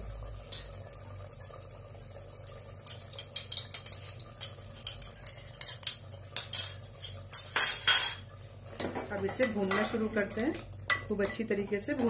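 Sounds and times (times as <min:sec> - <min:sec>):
metal bowl clinking on pot rim: 0:02.8 - 0:08.3, 0:09.1 - 0:10.0.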